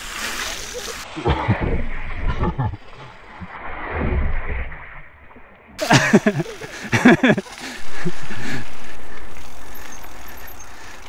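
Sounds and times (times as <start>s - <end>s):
bike tyres rolling: 0.0s - 1.1s, 5.8s - 11.0s
tyre splashing through puddle: 0.0s - 1.4s, 5.8s - 11.0s
wind: 0.0s - 11.0s.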